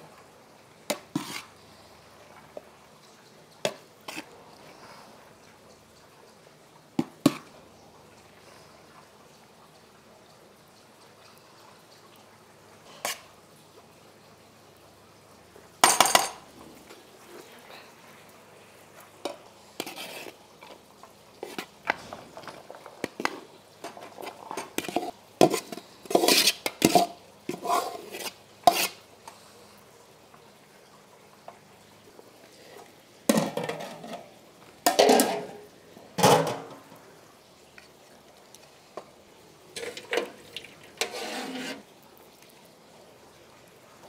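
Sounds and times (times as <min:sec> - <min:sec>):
metal utensils clinking on dishes: 0:15.8 - 0:16.4, 0:34.9 - 0:35.6, 0:39.8 - 0:40.4.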